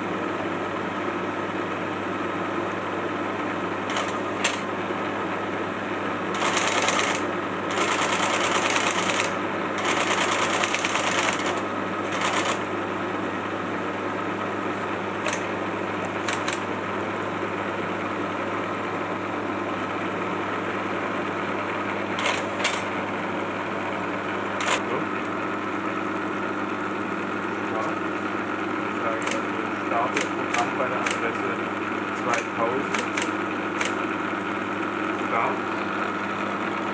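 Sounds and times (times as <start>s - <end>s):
computer hum: 0.0s - 36.9s
rapid mechanical chatter: 3.8s - 4.8s, 6.3s - 12.8s, 14.7s - 17.3s, 20.5s - 36.9s.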